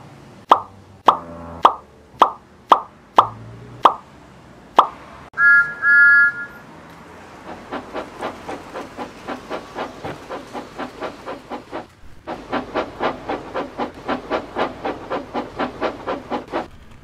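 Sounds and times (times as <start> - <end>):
steam locomotive chuffing: 6.4 - 17.0.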